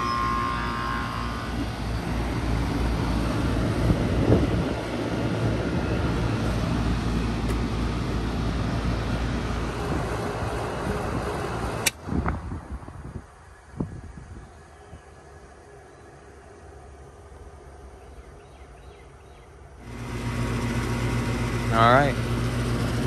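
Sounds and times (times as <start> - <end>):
heat pump compressor humming: 0.0 - 12.0, 19.5 - 23.0
condenser fan rushing air: 0.0 - 18.0, 19.6 - 23.0.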